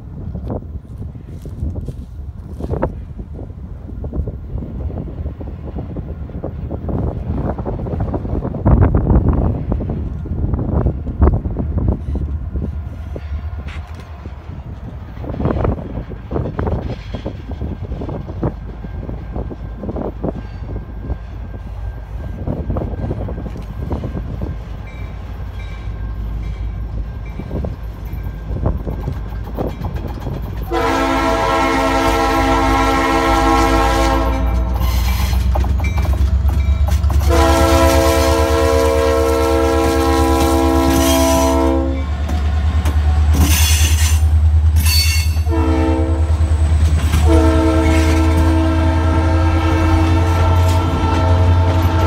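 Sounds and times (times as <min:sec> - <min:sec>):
diesel locomotive engine rumble: 0:00.0 - 0:52.0
train wheels clacking on rails: 0:11.9 - 0:32.3, 0:33.5 - 0:39.2, 0:42.0 - 0:45.6, 0:46.2 - 0:48.6
locomotive air horn: 0:30.7 - 0:35.1, 0:37.2 - 0:42.1, 0:44.9 - 0:52.0.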